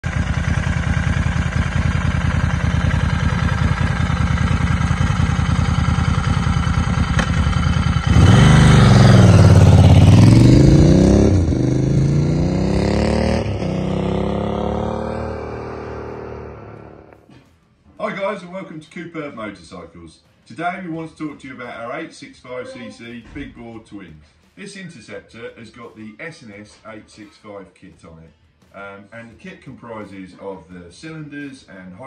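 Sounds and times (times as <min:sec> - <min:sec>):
motorcycle engine revving: 0:00.0 - 0:17.3.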